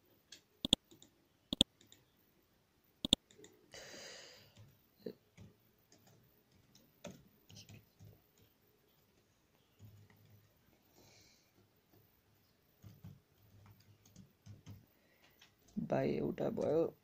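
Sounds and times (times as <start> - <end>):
soft keyboard typing: 0.2 - 2.2, 3.0 - 3.7, 4.4 - 16.9
computer mouse clicking: 0.3 - 2.1, 3.0 - 3.6, 4.5 - 10.6, 12.8 - 15.8.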